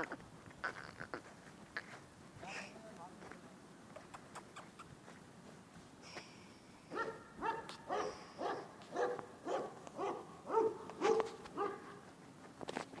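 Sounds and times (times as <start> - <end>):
dog barking: 6.9 - 12.0.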